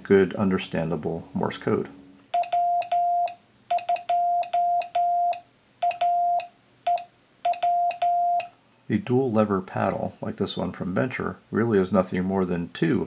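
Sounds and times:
morse code sidetone beeps: 2.3 - 8.5.

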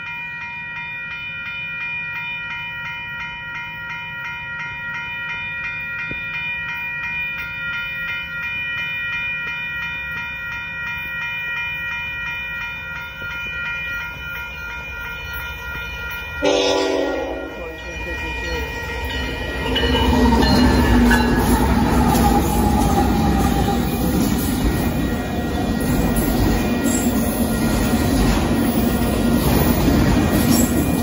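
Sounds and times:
railroad crossing bell ringing: 0.0 - 31.0
train rumbling: 14.3 - 31.0
locomotive horn blowing: 16.4 - 17.9.

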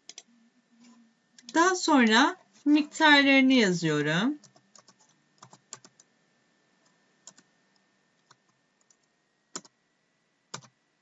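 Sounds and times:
computer keyboard keystrokes: 4.4 - 6.1, 8.2 - 9.7, 10.5 - 10.8.

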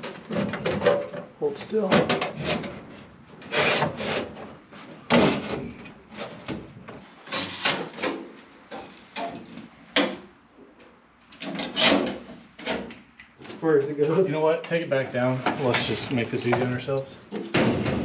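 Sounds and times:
sheet metal clanking and rattling: 17.4 - 18.0.

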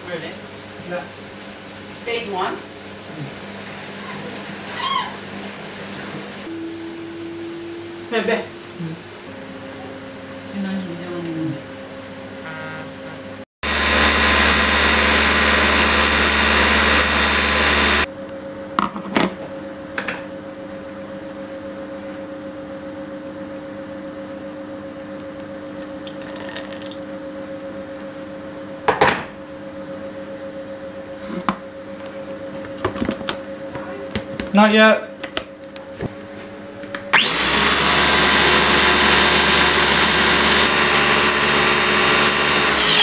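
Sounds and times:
blender pureeing: 13.6 - 18.1, 25.7 - 27.0, 37.1 - 43.0.

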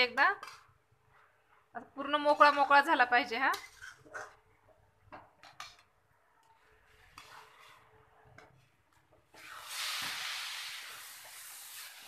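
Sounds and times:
spatula scraping a steel pan: 3.5 - 4.4, 6.5 - 8.7
food sizzling in a pan: 9.3 - 12.0.

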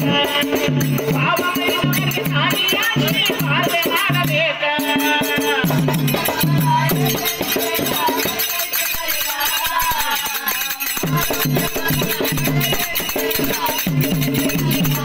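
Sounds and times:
rattling hand percussion: 0.0 - 15.0.

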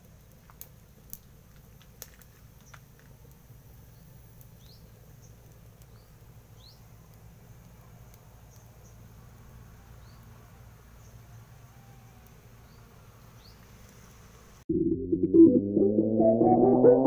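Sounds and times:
wood fire crackling pops: 0.0 - 11.5
short rising chirps: 15.3 - 17.0.

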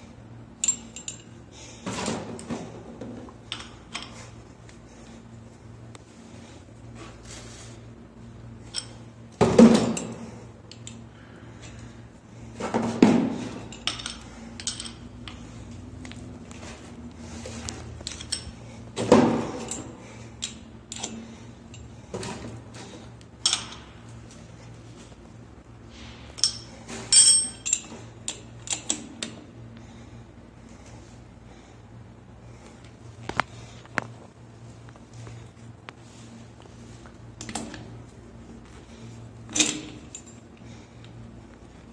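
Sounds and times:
spanner clinking on metal fittings: 13.7 - 15.4, 26.4 - 29.3.

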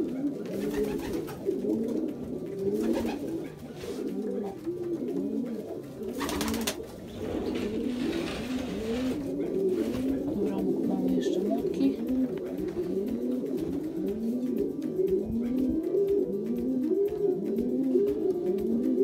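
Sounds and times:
pigeons cooing: 0.0 - 19.0
noisy rustle: 6.7 - 10.2.

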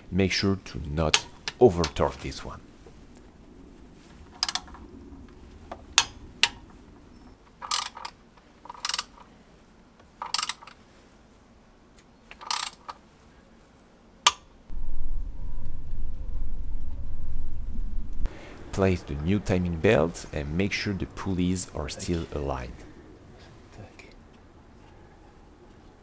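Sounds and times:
socket ratchet clicking: 10.2 - 10.7.

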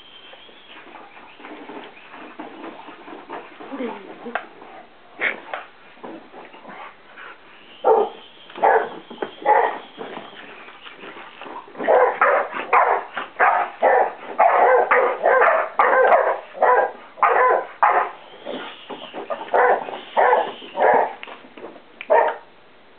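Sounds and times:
dog barking: 7.8 - 9.9, 11.8 - 18.2, 19.5 - 21.2, 22.1 - 22.4.

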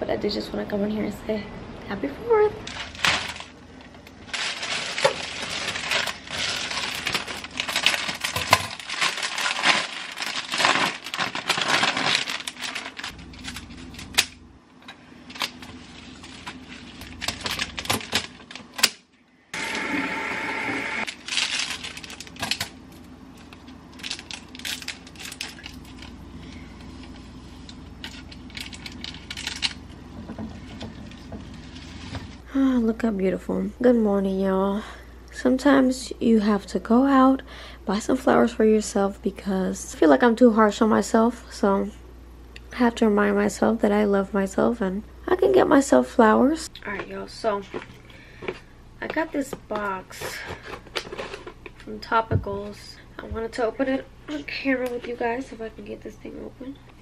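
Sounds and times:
cellophane wrap crinkling: 2.6 - 14.4, 15.1 - 19.1, 21.0 - 32.4, 46.9 - 52.1.

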